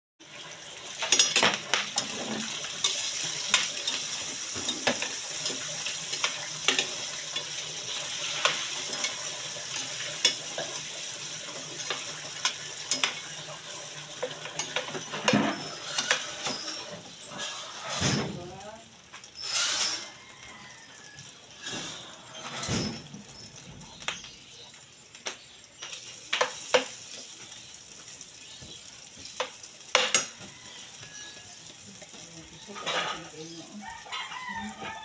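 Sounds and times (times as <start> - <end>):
meat sizzling in a frying pan: 0.2 - 35.0
metal spatula scraping a pan: 0.9 - 18.2, 19.4 - 20.4, 21.5 - 23.1, 32.6 - 33.6.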